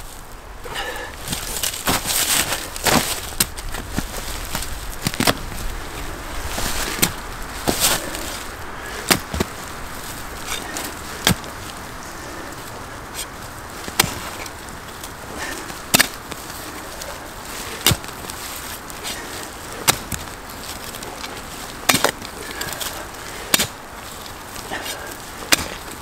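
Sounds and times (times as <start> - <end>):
dirt scraping: 0.0 - 26.0
digging tool striking soil: 1.6 - 5.6, 6.6 - 9.7, 10.4 - 11.6, 13.2 - 14.6, 15.4 - 26.0.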